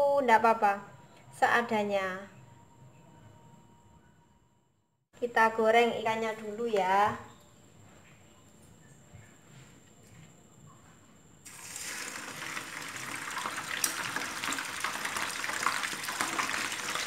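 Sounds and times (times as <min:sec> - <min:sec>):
fish sizzling in hot oil: 0:11.5 - 0:17.0.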